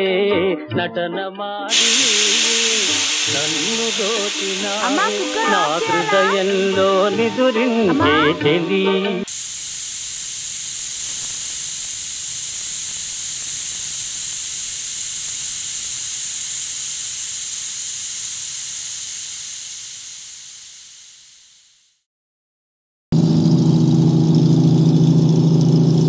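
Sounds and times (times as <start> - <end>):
pressure cooker valve hissing steam: 1.7 - 22.0.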